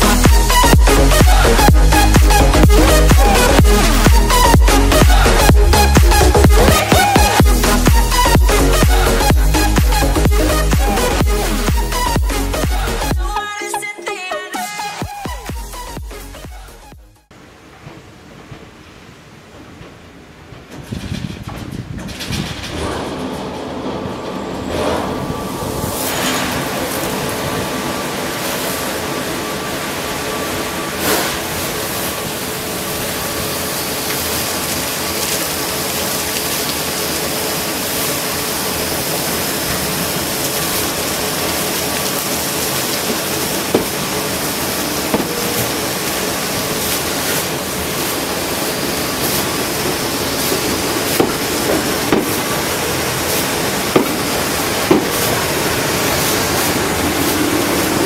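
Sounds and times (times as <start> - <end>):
water spraying from jets: 0.0 - 13.3, 25.2 - 58.0
train passing: 17.2 - 58.0.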